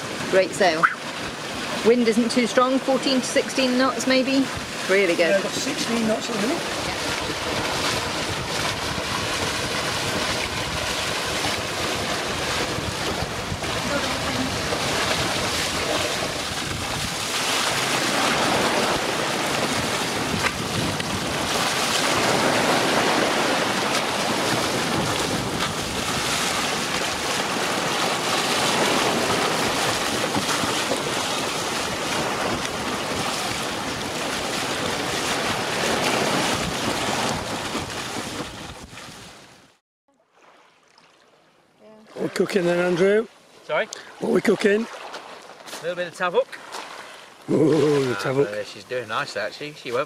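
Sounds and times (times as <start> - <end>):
water rushing along a hull: 0.0 - 50.0
wind buffeting microphone: 3.9 - 39.3.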